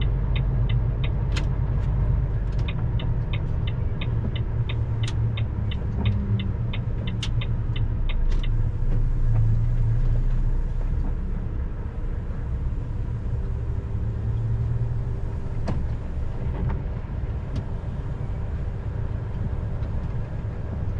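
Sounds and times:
truck engine droning: 0:00.0 - 0:20.9
turn-signal relay ticking: 0:02.6 - 0:08.6.

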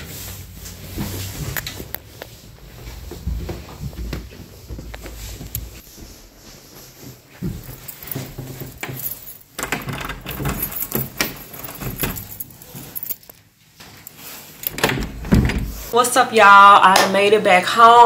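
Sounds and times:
keys jangling: 0:07.4 - 0:15.8
keys clicking in door lock: 0:07.7 - 0:13.4, 0:14.6 - 0:15.8.

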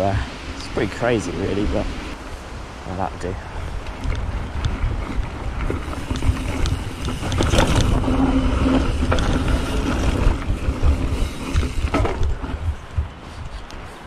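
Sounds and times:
bike tyres rolling: 0:00.0 - 0:14.0
wind rumbling on microphone: 0:00.0 - 0:14.0
bike knocking and rattling: 0:03.7 - 0:14.0.

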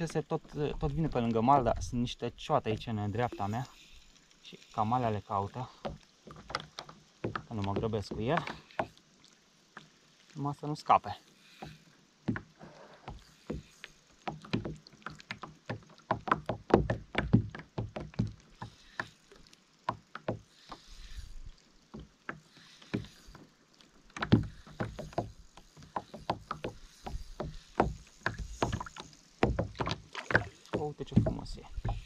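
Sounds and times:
knocks on hollow plastic kayak: 0:15.7 - 0:18.3, 0:29.4 - 0:32.0.

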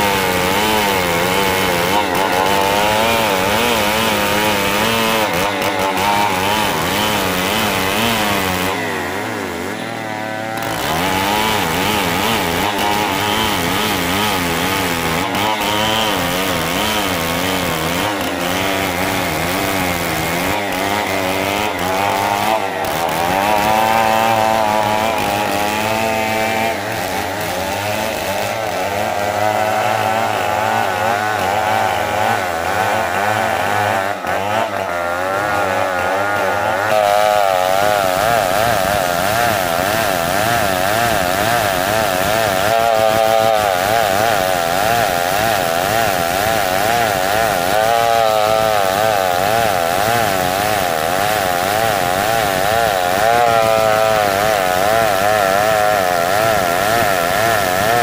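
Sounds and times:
chainsaw cutting wood: 0:00.0 - 0:58.0.

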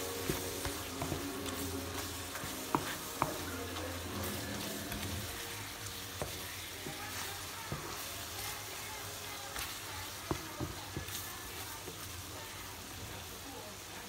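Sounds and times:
wooden spoon scraping a pan: 0:00.0 - 0:08.8
fruit sizzling in syrup: 0:00.0 - 0:14.0.

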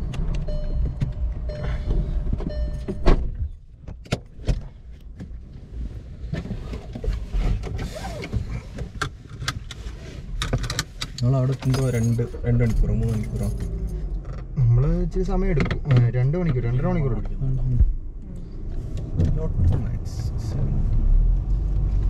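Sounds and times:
car road rumble: 0:00.0 - 0:22.0.

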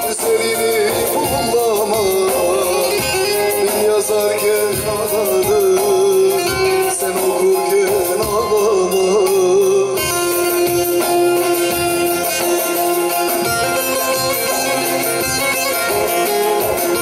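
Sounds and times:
man singing folk song: 0:00.0 - 0:10.3
long-necked lute playing: 0:10.0 - 0:17.0.

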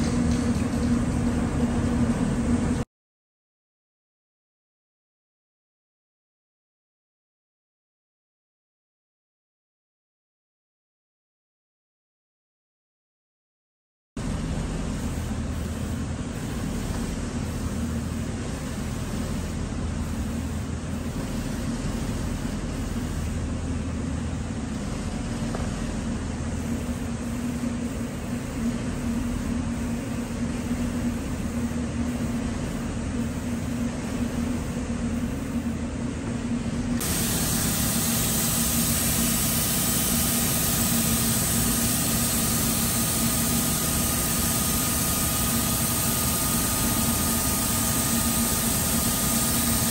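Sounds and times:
ventilation hum: 0:00.0 - 0:02.8, 0:14.2 - 0:49.9
paint spray gun hissing: 0:37.0 - 0:49.9.

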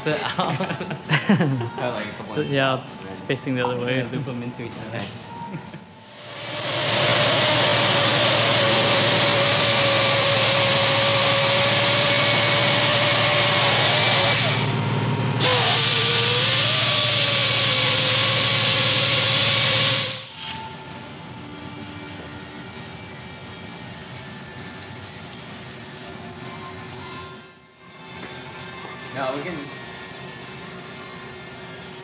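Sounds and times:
handheld grinder whining: 0:06.1 - 0:14.7, 0:15.4 - 0:20.3.

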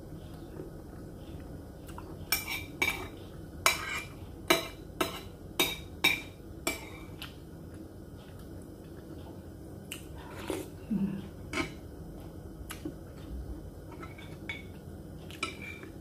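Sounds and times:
cutlery clinking against a dish: 0:03.7 - 0:07.1, 0:13.9 - 0:15.9.

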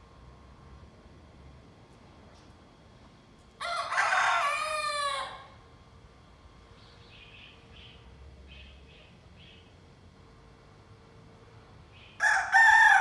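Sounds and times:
young rooster crowing: 0:03.6 - 0:05.6, 0:12.2 - 0:13.0.

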